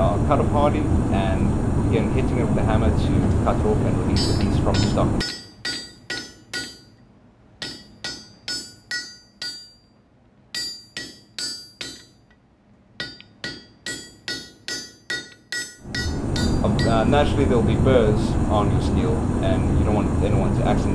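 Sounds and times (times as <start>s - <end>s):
hammer striking steel on anvil: 4.1s - 7.0s, 7.6s - 9.9s, 10.5s - 12.4s, 13.0s - 17.2s.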